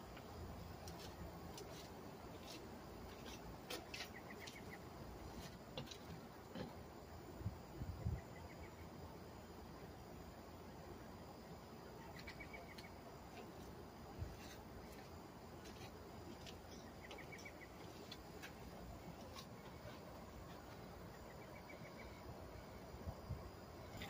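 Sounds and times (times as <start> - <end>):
steady low hiss: 0.0 - 24.0
bird chirping: 3.2 - 5.4, 12.0 - 13.6, 15.8 - 18.3, 19.1 - 22.3.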